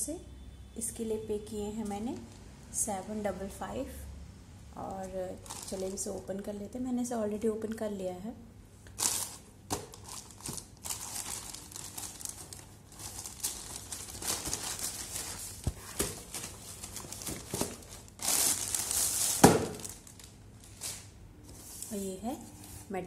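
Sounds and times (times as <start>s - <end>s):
plastic mailer bag rustling: 5.3s - 6.3s, 9.0s - 22.0s.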